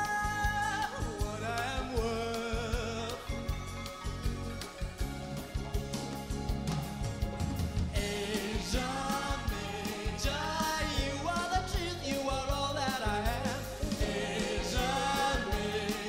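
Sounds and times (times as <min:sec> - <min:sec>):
person singing: 0:00.0 - 0:04.0, 0:08.0 - 0:16.0
pop band with drum kit: 0:00.0 - 0:16.0.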